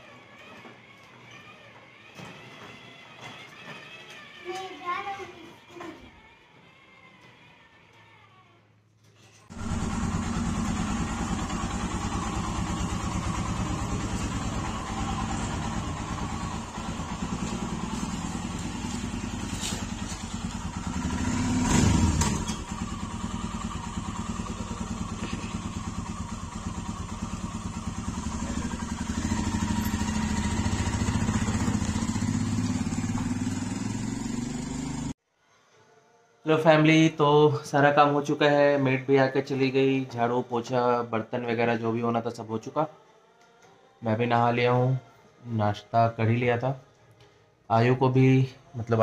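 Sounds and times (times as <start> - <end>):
motorcycle engine thumping: 9.5 - 35.1.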